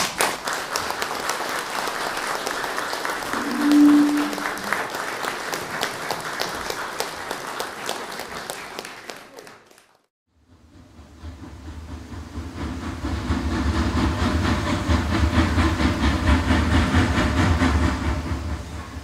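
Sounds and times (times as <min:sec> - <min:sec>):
audience applauding: 0:00.0 - 0:10.1
steady low tone: 0:03.3 - 0:04.9.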